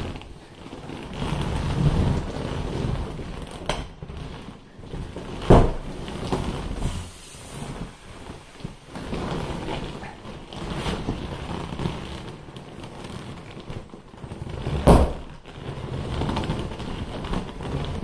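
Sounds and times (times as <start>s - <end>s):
vinyl rubbing and squeaking: 0.0s - 18.0s
thump: 5.4s - 5.9s, 14.8s - 15.3s
air rushing out: 6.8s - 8.2s.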